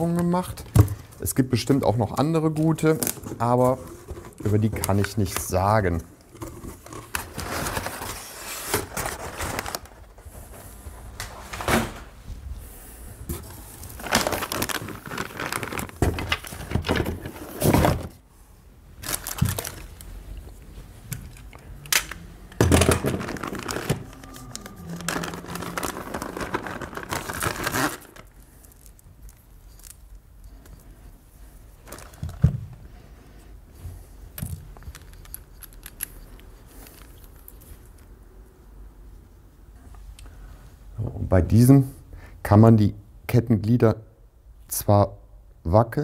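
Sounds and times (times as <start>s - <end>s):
packing paper rustling: 6.4s - 10.2s, 13.3s - 18.1s, 19.0s - 20.6s, 22.6s - 30.1s, 31.8s - 32.7s.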